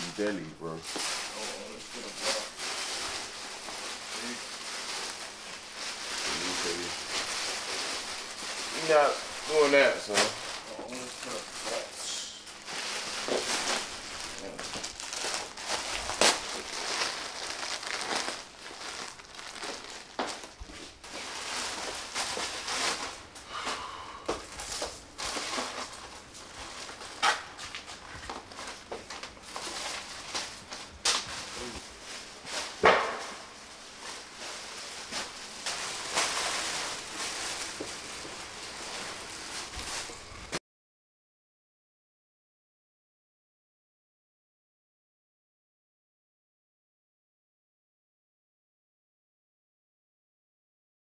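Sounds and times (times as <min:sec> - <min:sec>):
plastic bags crinkling: 0:00.0 - 0:23.5, 0:24.3 - 0:40.6.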